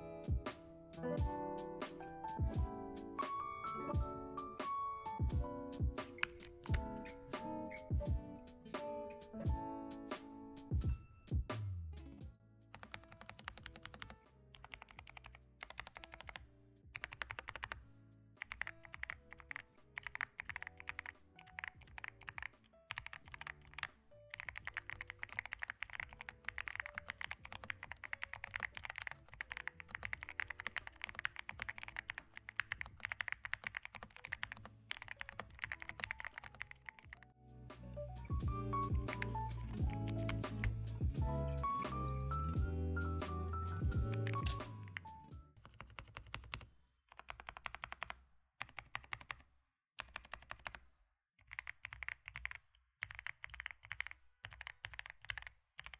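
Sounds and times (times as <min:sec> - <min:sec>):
quiet background music: 0:00.0 - 0:46.6
mechanical keyboard key clicks: 0:18.5 - 0:37.2, 0:44.1 - 0:46.6.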